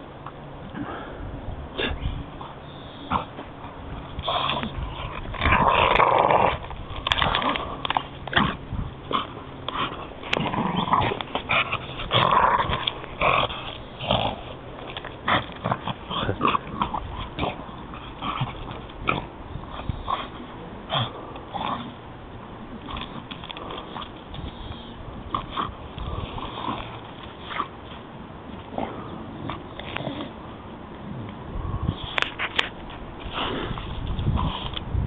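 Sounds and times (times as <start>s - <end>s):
dog growling: 3.0s - 22.0s, 24.7s - 27.7s.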